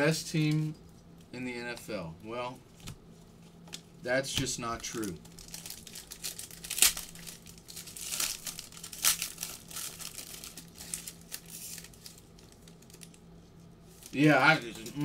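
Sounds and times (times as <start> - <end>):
plastic wrapper crinkling and tearing: 4.7 - 14.2.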